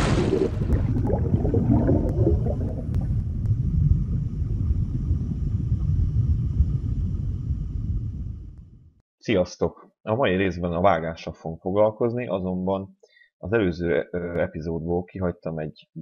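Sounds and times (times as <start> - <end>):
bubbly gurgling: 0.0 - 5.3
deep underwater rumble: 0.0 - 9.0.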